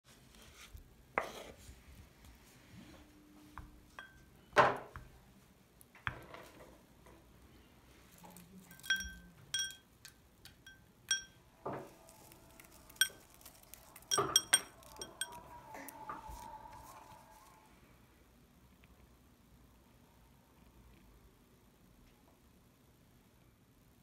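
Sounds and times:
spoon knocking on glass bowl: 3.9 - 4.3, 8.7 - 11.4, 14.1 - 15.4
spoon clinking on glass: 4.0 - 4.3, 8.7 - 11.4, 12.9 - 15.5.

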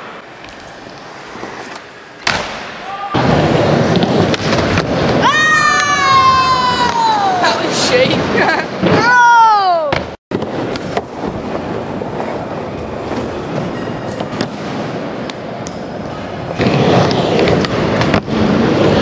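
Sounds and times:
skateboard wheels rolling on wood: 0.0 - 19.0.

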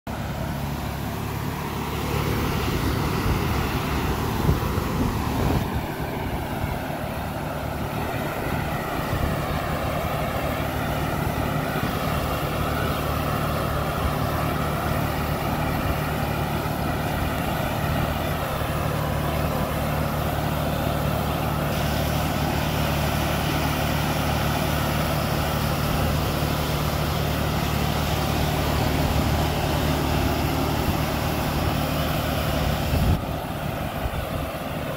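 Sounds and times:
sprayer fan air rushing: 0.1 - 34.9
tractor diesel engine running: 0.1 - 34.9.

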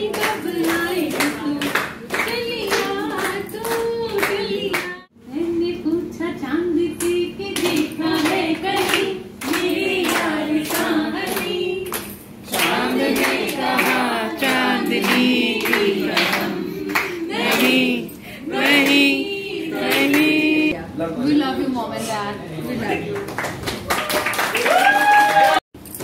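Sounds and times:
hand-clapping: 0.0 - 5.0, 7.0 - 17.9, 19.8 - 20.4, 23.2 - 25.6
group singing: 0.0 - 5.1, 7.0 - 20.8.

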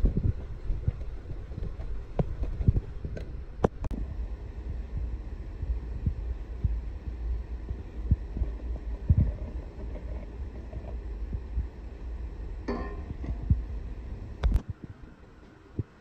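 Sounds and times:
low rumble: 0.0 - 16.0
metal bowl clinking on glass: 12.7 - 13.2.

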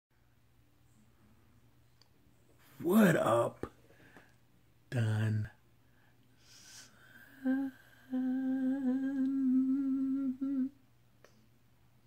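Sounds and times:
man humming: 6.7 - 10.8.

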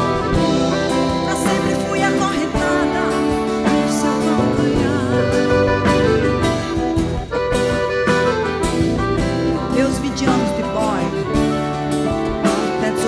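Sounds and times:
woman singing: 0.0 - 6.8, 9.7 - 11.4, 12.6 - 13.0
accordion: 0.0 - 13.0
acoustic guitar: 0.0 - 13.0.

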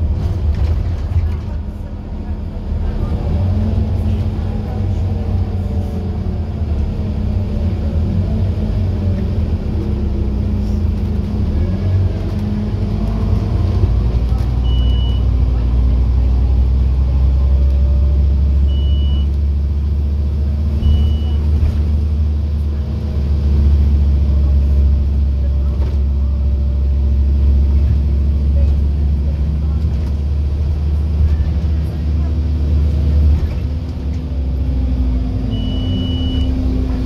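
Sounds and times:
bus diesel engine: 0.0 - 37.0
short high beeps: 35.6 - 36.5.

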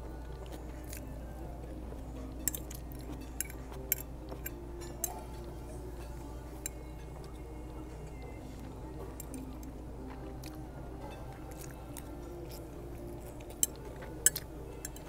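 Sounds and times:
low room hum: 0.0 - 15.0
fork clinking on plate: 13.5 - 15.0.

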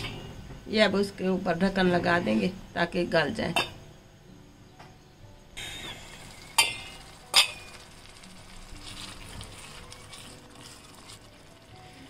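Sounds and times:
food sizzling: 5.6 - 12.0
wooden spoon stirring in pan: 6.0 - 12.0
metal pot lid clanking: 6.5 - 7.8.

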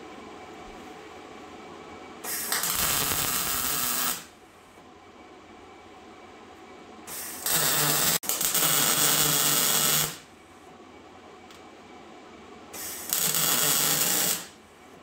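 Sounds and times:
wire-feed welder buzzing: 2.3 - 4.3, 7.1 - 10.2, 12.8 - 14.6.

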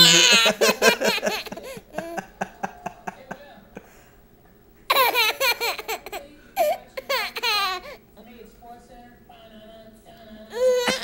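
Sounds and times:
baby laughing: 0.0 - 3.2, 4.9 - 8.0.

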